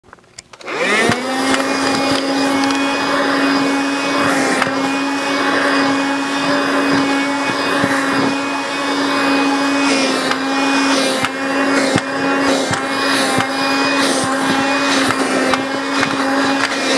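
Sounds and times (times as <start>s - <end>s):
clicks: 0.1s - 2.8s
handheld vacuum cleaner whining: 0.1s - 16.9s.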